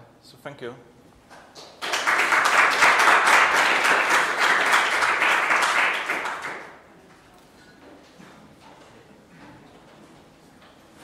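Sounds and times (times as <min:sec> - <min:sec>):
audience applauding: 0:01.5 - 0:06.8.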